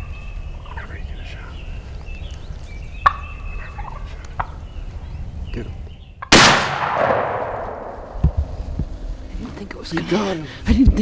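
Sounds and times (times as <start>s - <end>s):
turkey alarm calls: 0.0s - 6.4s
shotgun shot echoing: 6.3s - 8.4s.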